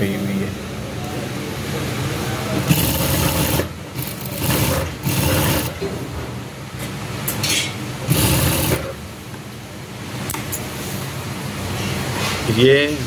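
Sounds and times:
sewing machine stitching: 0:02.6 - 0:05.8, 0:08.1 - 0:09.0.

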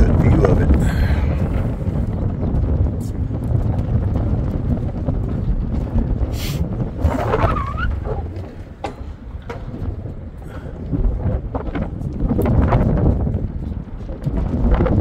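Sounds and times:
wind buffeting microphone: 0:00.0 - 0:15.0
short rising squeak: 0:07.0 - 0:08.4.

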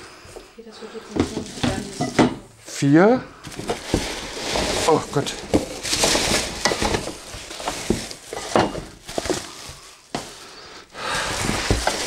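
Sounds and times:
packaging rustling: 0:03.4 - 0:12.0
parts knocking against cardboard box: 0:05.4 - 0:09.5, 0:11.4 - 0:12.0.

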